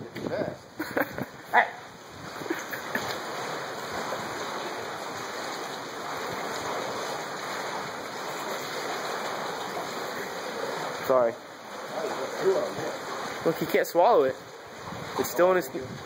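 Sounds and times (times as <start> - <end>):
water washing against pilings: 0.0 - 16.0.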